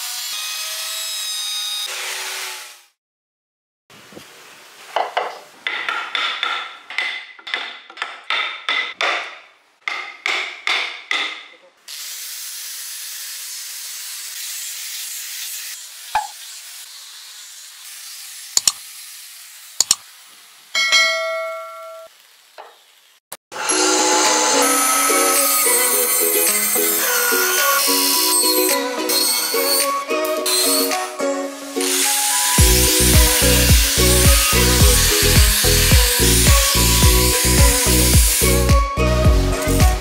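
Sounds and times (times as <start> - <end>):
angle grinder sanding wood: 11.9 - 20.5, 23.6 - 40.0
sharp clicks: 18.6 - 18.8, 19.8 - 20.0
short chime: 20.8 - 22.1, 23.6 - 26.3.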